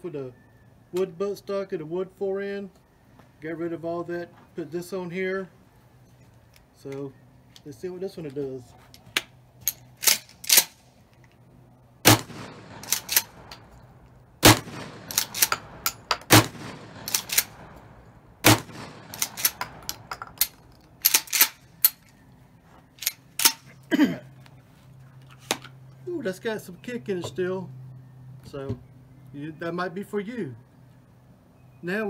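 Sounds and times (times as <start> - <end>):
shotgun slide racking clicks: 9.2 - 11.4, 12.8 - 13.7, 15.1 - 16.3, 17.0 - 17.6, 19.1 - 22.2, 23.0 - 23.6
shotgun shots: 12.0 - 13.7, 14.4 - 20.2.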